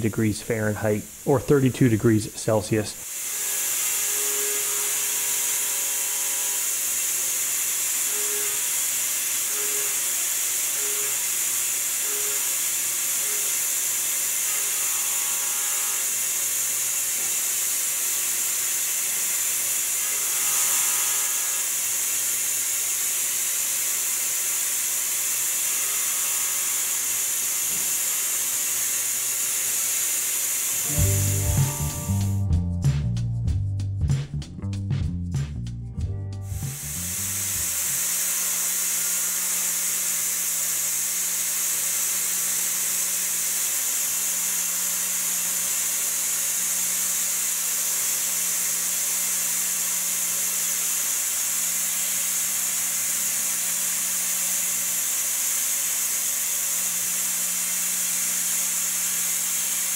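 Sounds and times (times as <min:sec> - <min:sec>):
compressed air hissing: 0:02.5 - 0:14.5, 0:26.8 - 0:32.4, 0:36.5 - 0:42.4
milling machine cutting: 0:03.0 - 0:32.3, 0:36.5 - 0:59.9.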